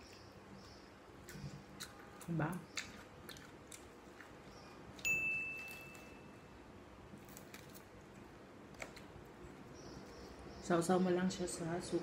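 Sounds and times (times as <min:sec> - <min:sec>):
high clear chime: 0:05.0 - 0:06.5.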